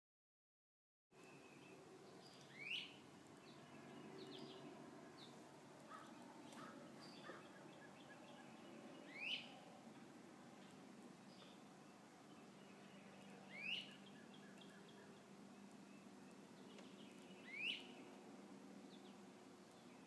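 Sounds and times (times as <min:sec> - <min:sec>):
bird sweeping calls: 0:05.9 - 0:09.6, 0:13.5 - 0:15.1.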